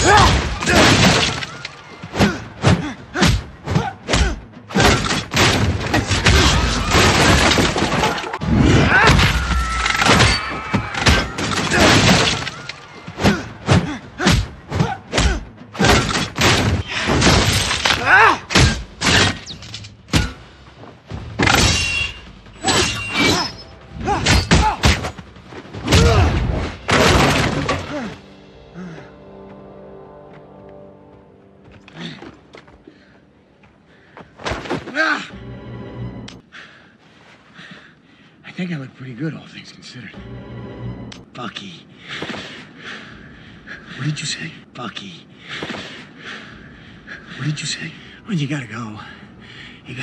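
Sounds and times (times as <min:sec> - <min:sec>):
music: 0:00.0 - 0:36.6, 0:40.0 - 0:41.3.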